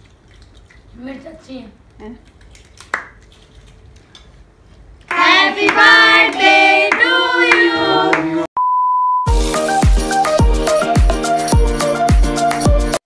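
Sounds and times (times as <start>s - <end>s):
hands clapping: 2.8s - 3.2s, 5.1s - 8.4s
people singing: 5.1s - 8.5s
steady one-tone beep: 8.6s - 9.4s
music with heavy beat: 9.3s - 13.0s.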